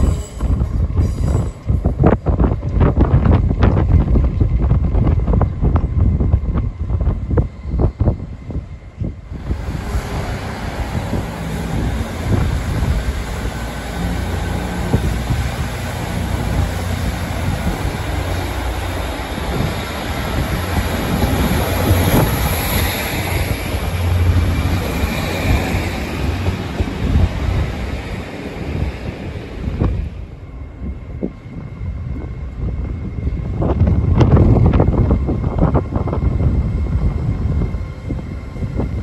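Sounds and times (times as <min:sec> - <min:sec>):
train diesel engines droning: 0:00.0 - 0:39.0.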